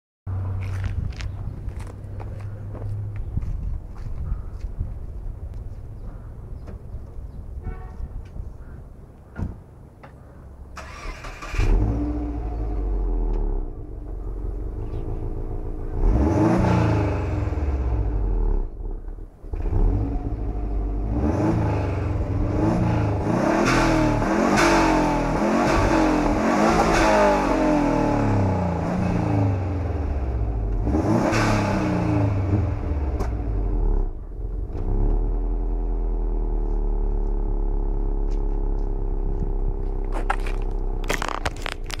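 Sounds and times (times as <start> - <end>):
car engine idling and revving: 10.8 - 42.0.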